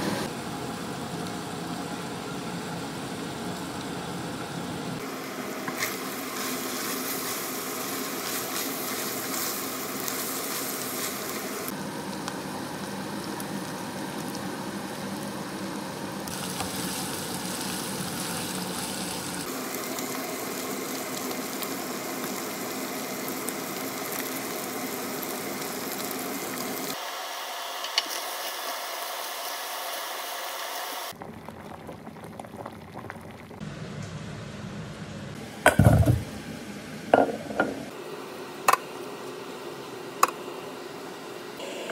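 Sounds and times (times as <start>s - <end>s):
food sizzling in a pan: 5.0s - 31.2s.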